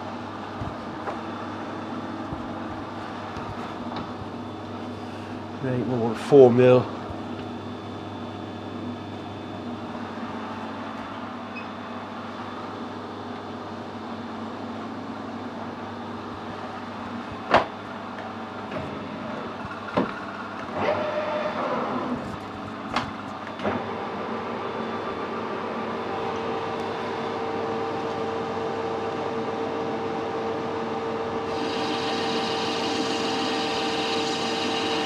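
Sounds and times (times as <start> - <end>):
lathe humming: 24.1 - 35.0
lathe chuck spinning: 31.5 - 35.0.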